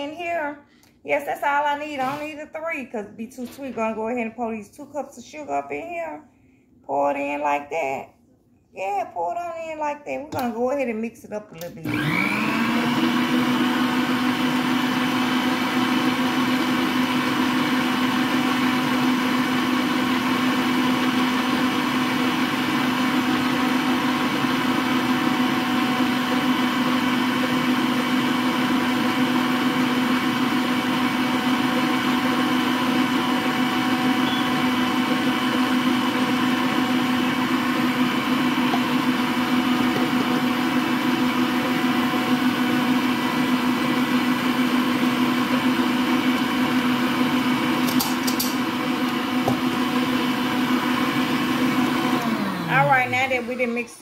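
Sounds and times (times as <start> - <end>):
stand mixer motor whine: 11.8 - 54.0.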